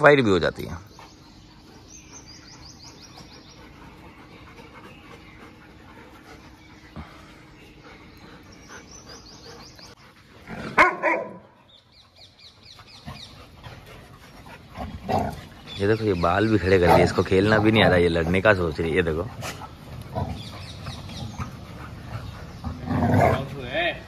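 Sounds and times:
birds chirping: 0:00.0 - 0:24.0
dog barking: 0:10.7 - 0:11.5.

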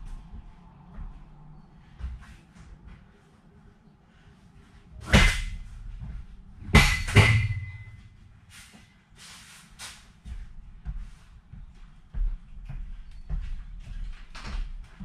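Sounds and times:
loud metallic bangs: 0:06.6 - 0:08.2.

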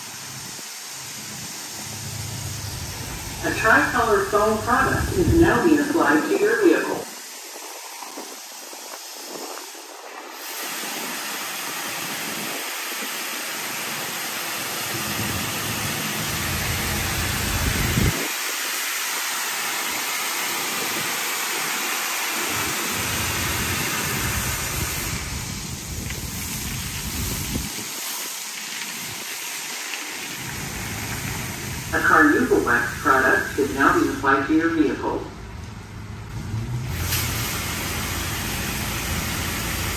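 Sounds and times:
car wash spraying water: 0:00.0 - 0:35.1, 0:36.7 - 0:39.9
low rumbling: 0:01.8 - 0:06.2.

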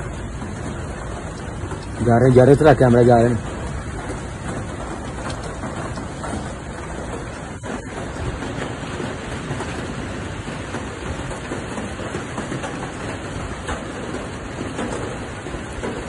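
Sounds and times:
raindrop taps: 0:00.0 - 0:16.0
steady rain falling: 0:00.0 - 0:16.0.

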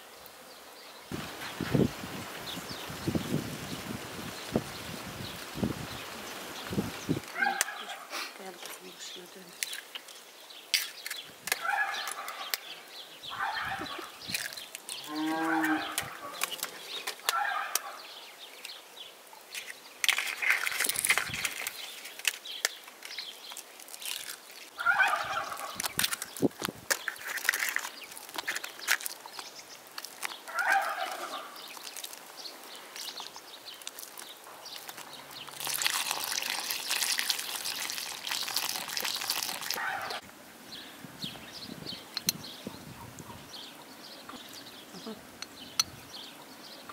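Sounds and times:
farmyard animals calling: 0:07.3 - 0:08.2, 0:11.6 - 0:12.6, 0:13.3 - 0:14.2, 0:14.9 - 0:18.2, 0:24.8 - 0:25.9, 0:30.4 - 0:32.1, 0:39.6 - 0:40.2
milk pouring into bowl: 0:35.5 - 0:39.8.

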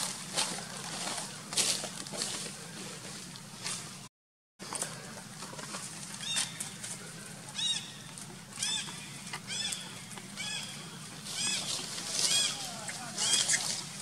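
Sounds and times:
high-pitched animal calls: 0:08.6 - 0:13.9.

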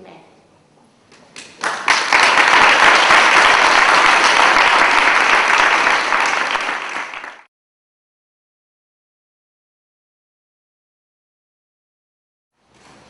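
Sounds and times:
audience applauding: 0:01.3 - 0:07.5.

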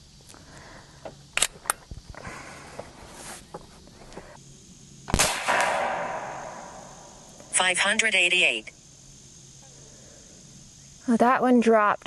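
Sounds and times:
air rifle shot with echo: 0:05.1 - 0:07.2.

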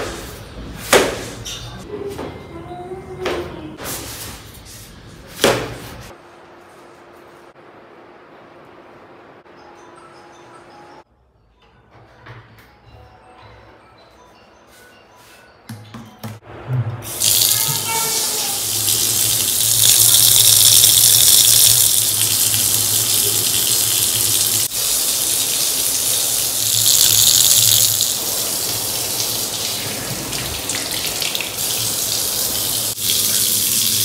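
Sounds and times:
water running: 0:17.1 - 0:34.0.

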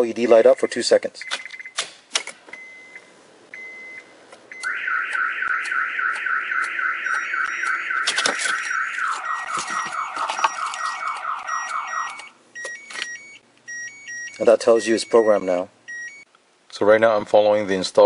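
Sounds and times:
short beeps and clicks: 0:01.2 - 0:01.8, 0:02.5 - 0:16.3
car alarm siren: 0:04.5 - 0:14.1.

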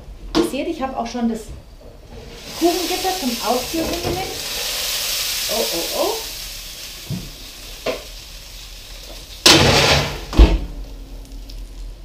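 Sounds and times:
heavy thud: 0:09.5 - 0:10.8.

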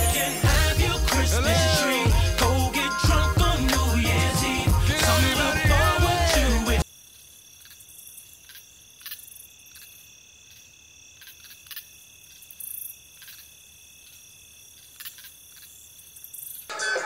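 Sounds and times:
hip-hop music with singing: 0:00.0 - 0:06.8.

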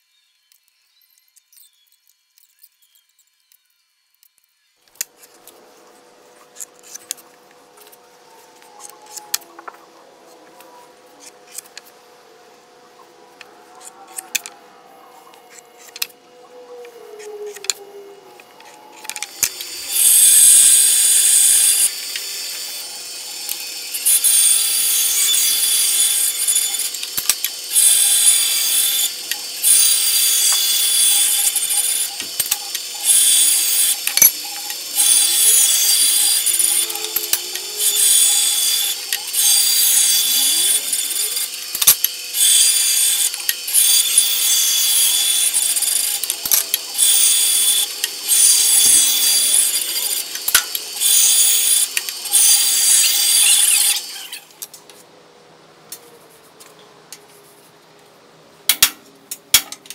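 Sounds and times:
bandsaw humming: 0:04.8 - 0:54.6
bandsaw blade cutting wood: 0:04.9 - 0:12.0, 0:12.9 - 0:14.6, 0:15.3 - 0:16.3, 0:16.9 - 0:54.6.

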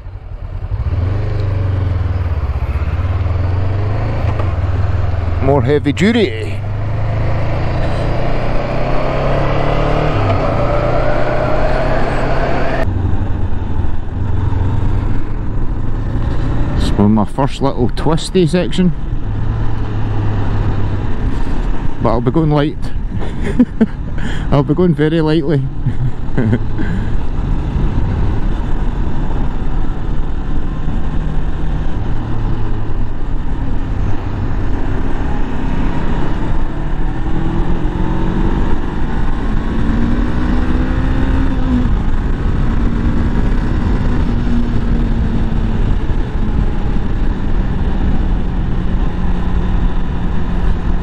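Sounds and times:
motorcycle engine accelerating: 0:00.0 - 0:17.3, 0:18.7 - 0:22.3, 0:23.5 - 0:51.0
wind rush on microphone: 0:25.7 - 0:51.0.

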